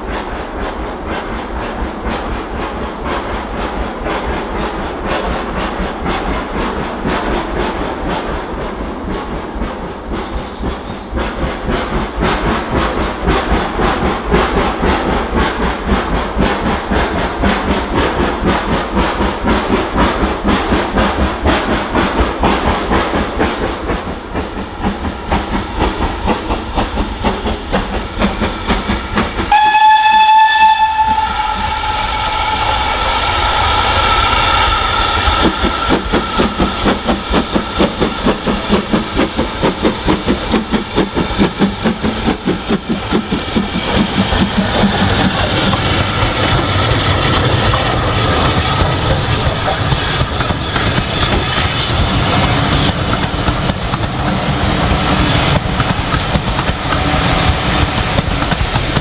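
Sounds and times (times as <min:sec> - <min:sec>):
steam locomotive exhaust beats: 0:00.0 - 0:59.0
steam whistle blast: 0:29.5 - 0:35.8.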